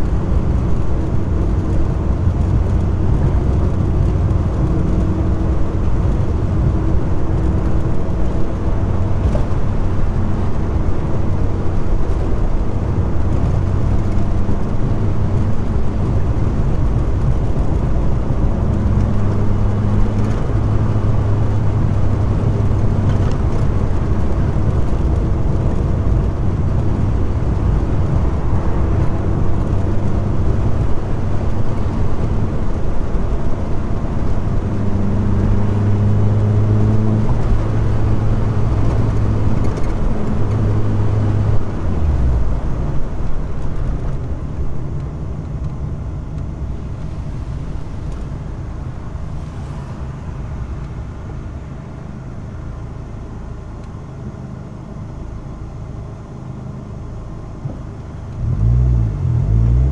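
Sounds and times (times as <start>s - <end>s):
car engine drone: 0.0s - 59.9s
road and tyre noise: 0.0s - 59.9s.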